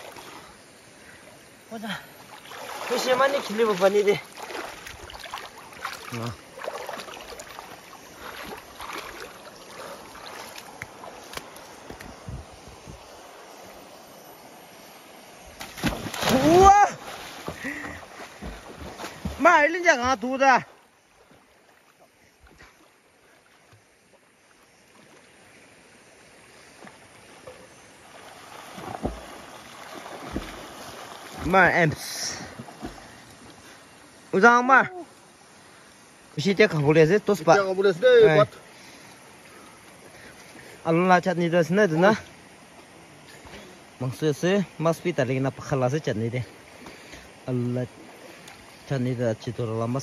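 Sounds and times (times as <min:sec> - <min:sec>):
water splashing around wading legs: 0:02.2 - 0:12.3, 0:15.5 - 0:21.6, 0:27.5 - 0:33.4.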